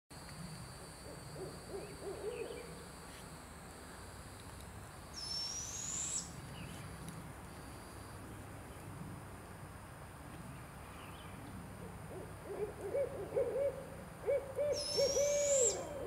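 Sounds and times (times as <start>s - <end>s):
owl low hoots: 1.0s - 2.8s, 11.8s - 16.0s
owlet high begging call: 12.1s - 16.0s.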